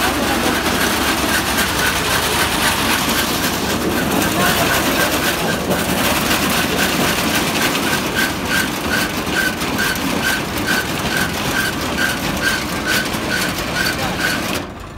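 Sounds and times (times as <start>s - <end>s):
reaper machine drone: 0.0s - 8.6s
rhythmic cutter bar clatter: 0.0s - 14.9s.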